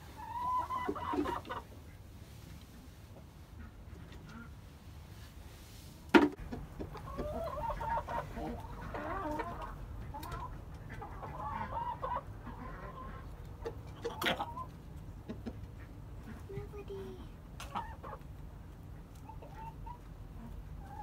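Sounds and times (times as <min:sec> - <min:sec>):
chickens clucking: 0:00.0 - 0:05.5, 0:06.1 - 0:21.0.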